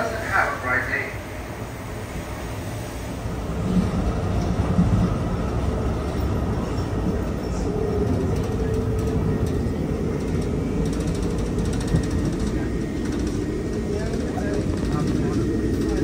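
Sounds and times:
train rumble inside coach: 0.0s - 16.0s.

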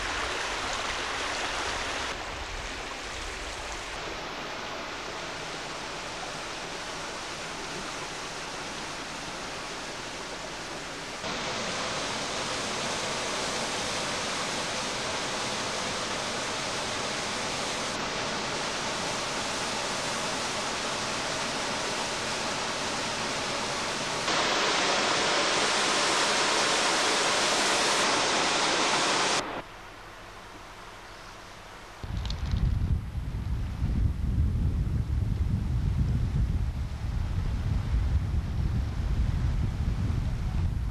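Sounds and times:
water rushing: 0.0s - 31.1s.

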